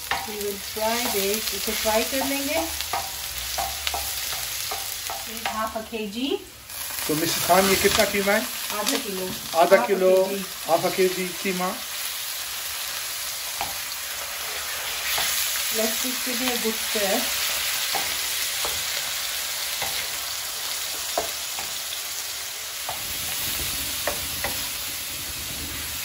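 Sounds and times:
mince sizzling in oil: 0.0s - 26.0s
spatula scraping griddle: 6.8s - 9.0s.

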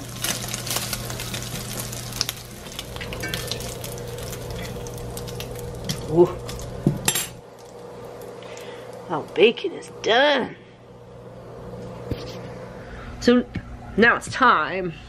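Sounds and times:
bacon sizzling and crackling: 0.0s - 10.4s.

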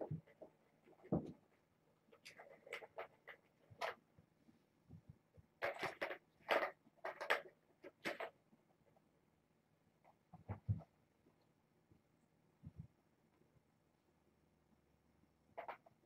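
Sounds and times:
rustling and light clicking: 0.0s - 9.0s.

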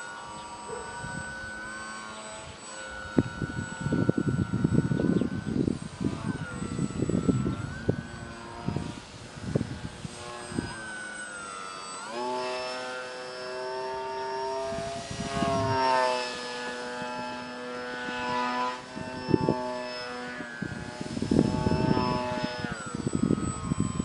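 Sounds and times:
electric motor and propeller whine: 0.0s - 24.0s
wind buffeting on microphone: 2.4s - 11.0s, 13.6s - 24.0s.

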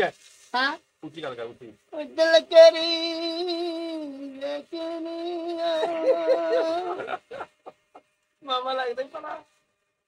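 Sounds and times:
person singing unaccompanied: 1.8s - 7.7s.

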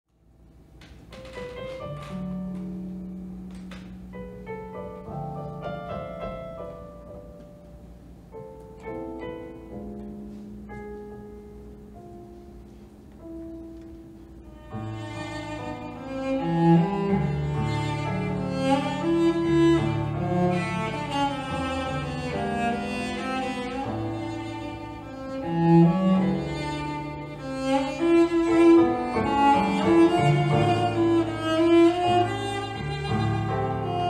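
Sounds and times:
piano: 0.1s - 34.0s
bowed cello: 13.7s - 34.0s.

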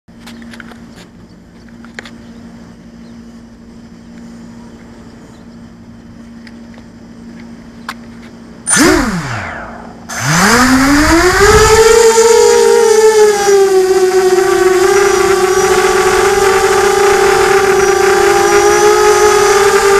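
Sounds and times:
quadcopter motor whine: 8.7s - 19.9s.

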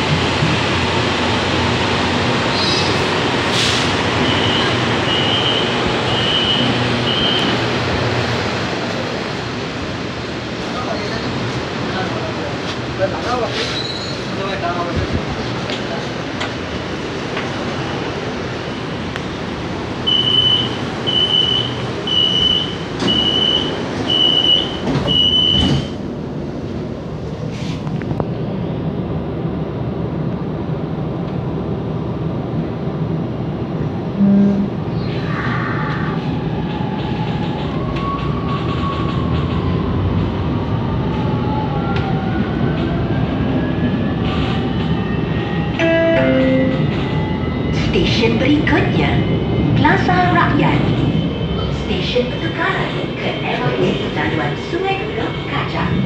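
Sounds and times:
train station platform noise: 0.0s - 56.0s
door warning beeps: 20.1s - 25.9s.

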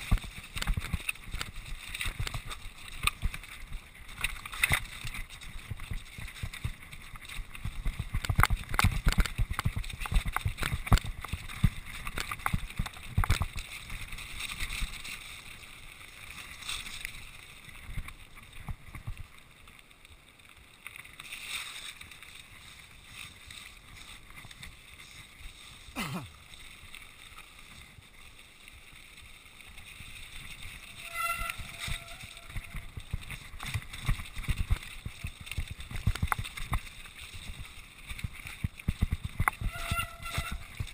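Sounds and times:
bike rattling over loose rock: 0.0s - 40.9s
wind on microphone: 38.2s - 40.9s.

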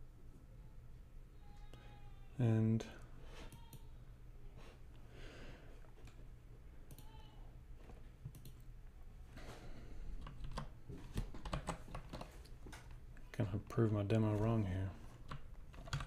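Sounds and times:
computer keyboard typing: 8.3s - 8.6s, 10.2s - 12.5s, 15.2s - 16.0s.

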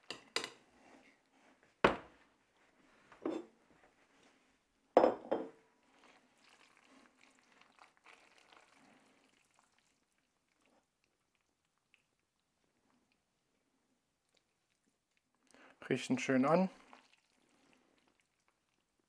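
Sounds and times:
plate set down on wooden counter: 5.0s - 5.6s
wet stirring of spaghetti: 5.7s - 19.0s.

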